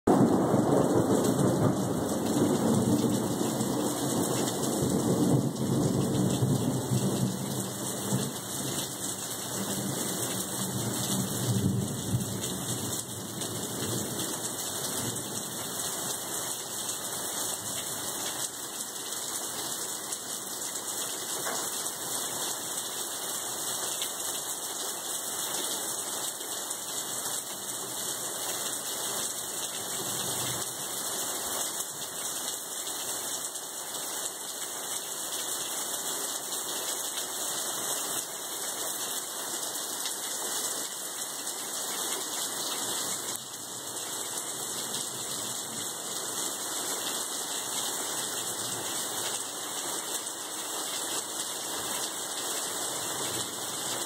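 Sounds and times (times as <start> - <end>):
thunder rumbling: 0.1 - 7.5
heavy rain: 0.1 - 54.0.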